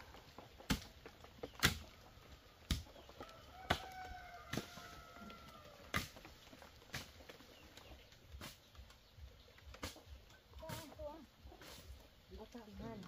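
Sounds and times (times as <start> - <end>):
rooster crowing: 3.2 - 6.0.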